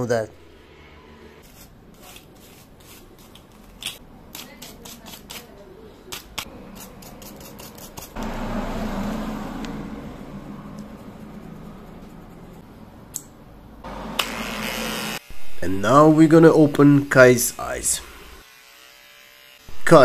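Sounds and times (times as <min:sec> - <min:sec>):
electric clipper buzzing: 0:13.8 - 0:15.5, 0:18.0 - 0:19.8.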